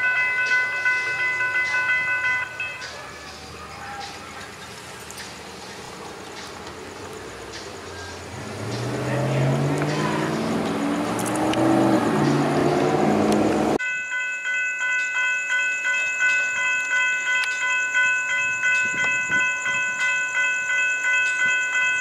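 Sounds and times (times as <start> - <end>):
railroad crossing bell ringing: 0.0 - 6.5, 7.3 - 10.8, 13.5 - 22.0
vehicle engine and road noise: 2.9 - 13.8.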